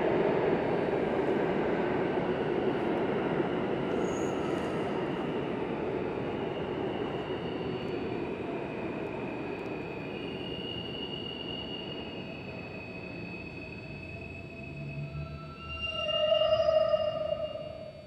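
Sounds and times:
subway train rumbling: 0.0s - 18.0s
faint high wheel squeal: 3.9s - 5.2s, 6.4s - 8.4s, 9.2s - 18.0s.

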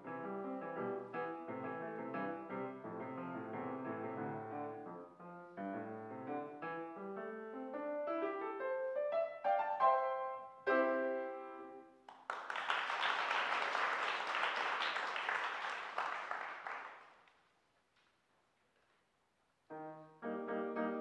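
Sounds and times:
grand piano playing: 0.0s - 11.9s, 19.7s - 21.0s
audience applauding: 12.1s - 17.4s.

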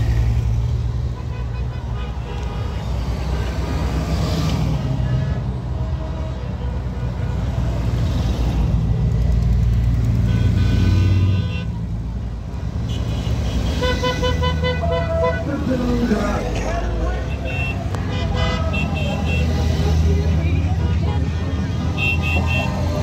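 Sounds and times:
motorcycle engines passing: 7.0s - 23.0s.

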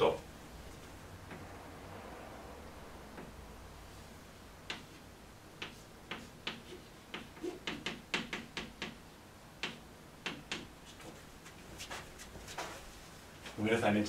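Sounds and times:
chalk tapping and scratching on board: 4.7s - 5.0s, 5.6s - 9.0s.

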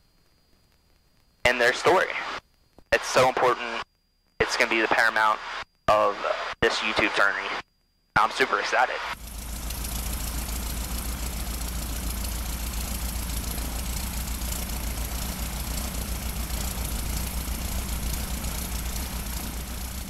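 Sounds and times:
light airplane engine drone: 8.3s - 20.0s.

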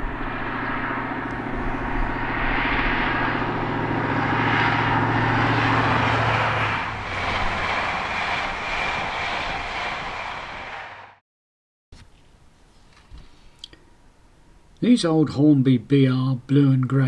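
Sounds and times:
engine low drone: 0.0s - 11.2s
rushing noise: 0.0s - 11.2s.

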